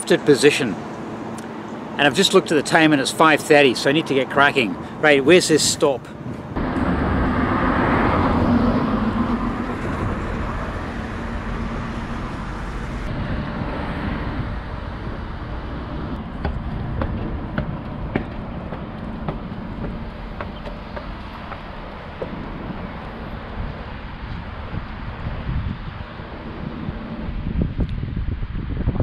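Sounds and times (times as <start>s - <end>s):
steady traffic noise: 0.0s - 29.0s
vehicle passing close by: 6.3s - 28.7s.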